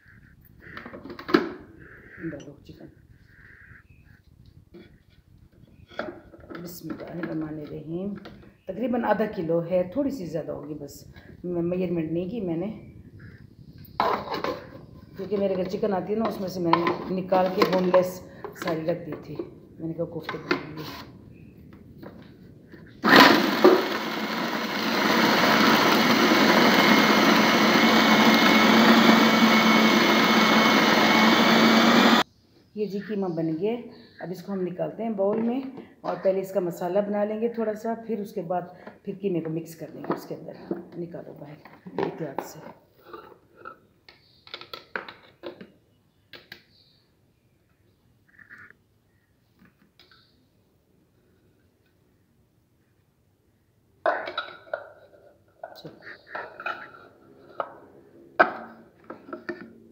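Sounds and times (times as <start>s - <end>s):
food processor motor running: 23.0s - 32.2s.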